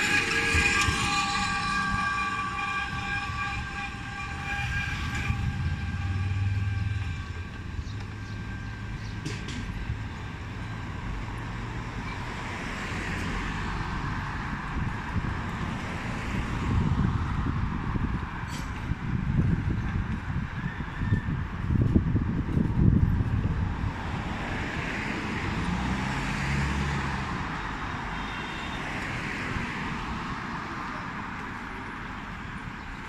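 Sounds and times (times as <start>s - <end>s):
steady high tone: 0.0s - 11.1s
vehicles passing: 0.0s - 33.0s.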